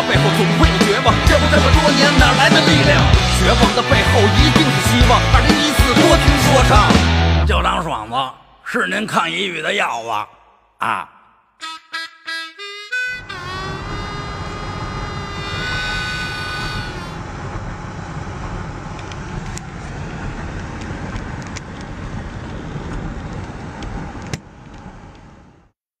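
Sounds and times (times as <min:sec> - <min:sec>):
harmonica note: 0:00.0 - 0:06.7, 0:11.6 - 0:17.2
rumble of passing cars: 0:13.2 - 0:25.7.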